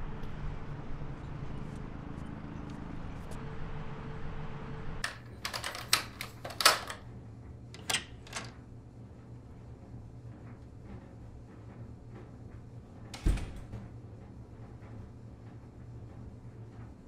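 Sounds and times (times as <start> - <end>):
low hum: 0.0 - 7.8.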